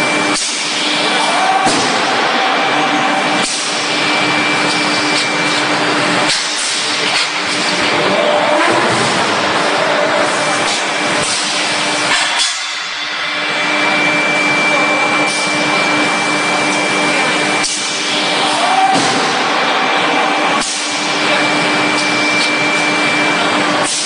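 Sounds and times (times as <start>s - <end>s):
thin high whine: 9.7s - 24.0s.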